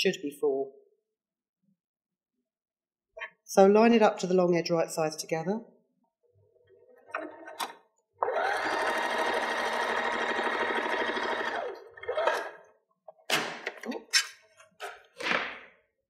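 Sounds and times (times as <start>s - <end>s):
sewing machine stitching: 7.1s - 12.6s.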